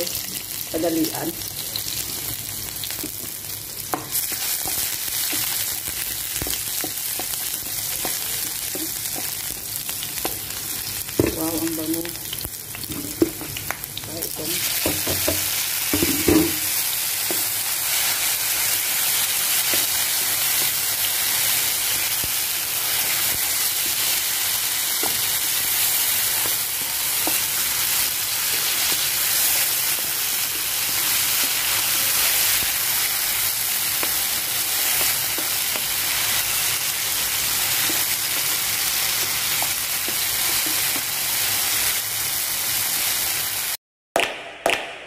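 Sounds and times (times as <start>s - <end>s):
food sizzling in hot oil: 0.0s - 43.8s
spoon knocking and scraping pan: 14.8s - 17.5s.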